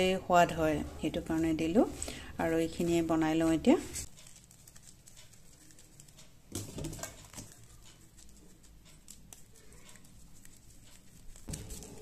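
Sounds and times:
hands squeezing puffed rice: 2.9s - 6.5s
knocks and rustles: 6.1s - 7.6s.

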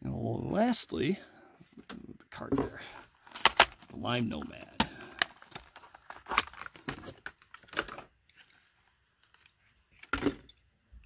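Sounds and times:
plastic blister pack crackling: 3.2s - 8.0s.

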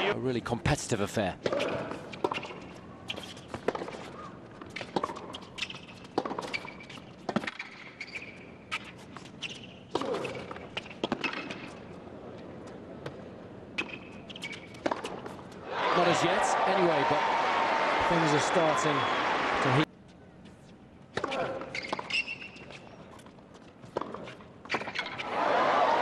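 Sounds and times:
tennis ball bouncing on court: 1.4s - 11.8s, 13.8s - 15.4s, 21.1s - 25.2s.

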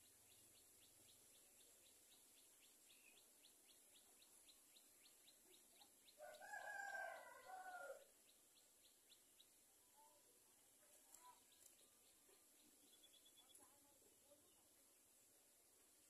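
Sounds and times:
rooster crowing: 6.2s - 8.1s.

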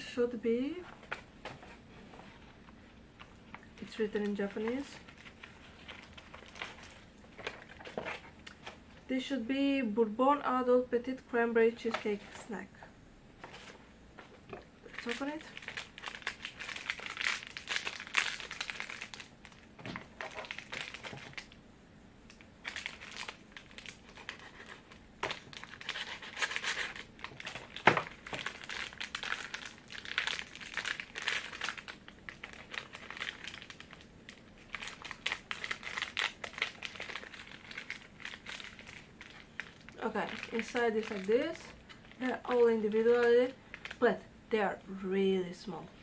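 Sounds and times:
plastic wrapper crinkling: 2.7s - 8.8s, 14.8s - 21.6s, 22.3s - 44.1s.

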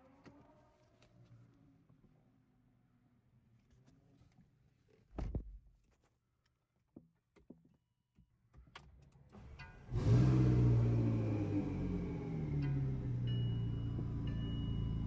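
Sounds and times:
car engine starting and idling: 9.4s - 15.0s.

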